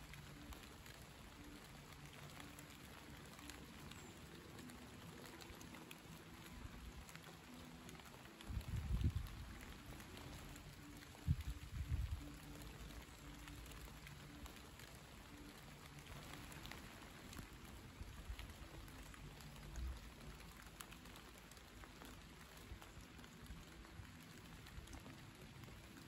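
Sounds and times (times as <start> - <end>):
light rain hiss: 0.0 - 26.0
raindrop ticks: 0.0 - 26.0
wind rumble on microphone: 8.4 - 10.4, 11.0 - 12.5.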